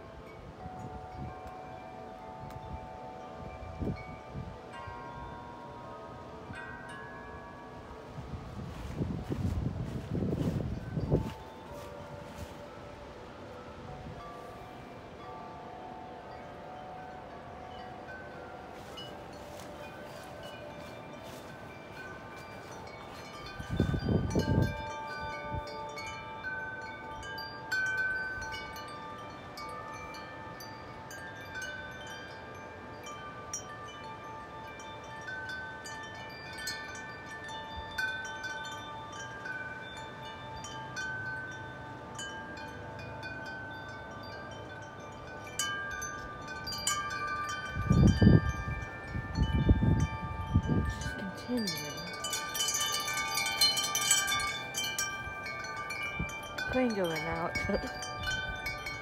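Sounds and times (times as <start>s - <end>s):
metal wind chime ringing: 0.0s - 59.0s
wind buffeting microphone: 7.9s - 14.8s, 17.8s - 28.7s, 45.7s - 59.0s.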